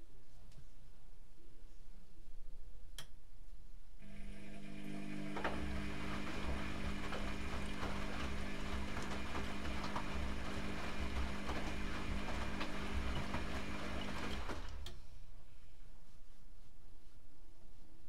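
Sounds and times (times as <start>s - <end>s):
drum motor humming: 4.1s - 14.8s
laundry tumbling in drum: 5.2s - 14.8s.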